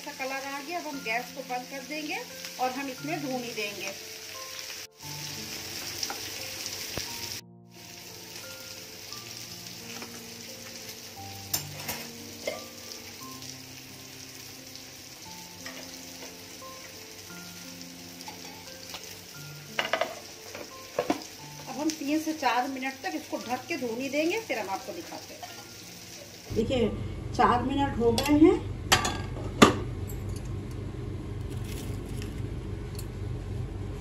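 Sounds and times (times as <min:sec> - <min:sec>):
oil sizzling in a pan: 0:00.0 - 0:26.7
soft background music: 0:00.0 - 0:32.6.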